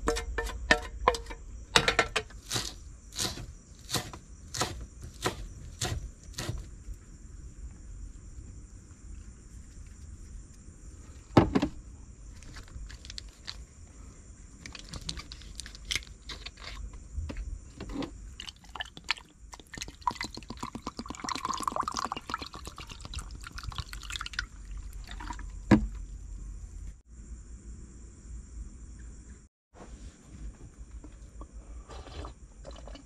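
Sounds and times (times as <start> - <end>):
liquid pouring and gurgling: 18.4 - 25.7, 32.1 - 33.0.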